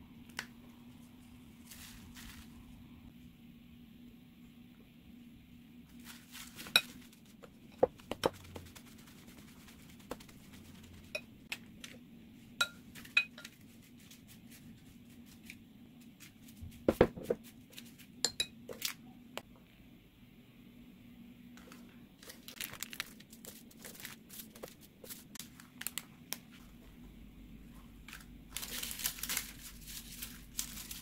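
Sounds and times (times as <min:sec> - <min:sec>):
lettuce leaves tossed: 0:01.6 - 0:02.7, 0:05.9 - 0:12.0, 0:21.7 - 0:26.4, 0:28.0 - 0:31.0.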